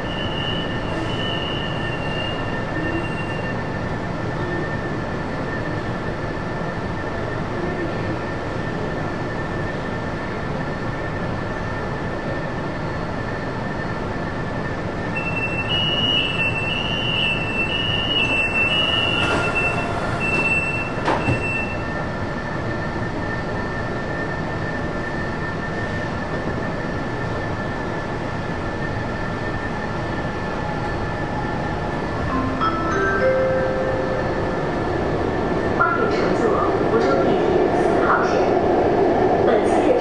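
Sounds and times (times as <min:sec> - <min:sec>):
high pulsing warning beep: 0:00.0 - 0:03.7, 0:15.2 - 0:22.0
train hum: 0:00.0 - 0:40.0
train doors knocking shut: 0:19.0 - 0:21.7.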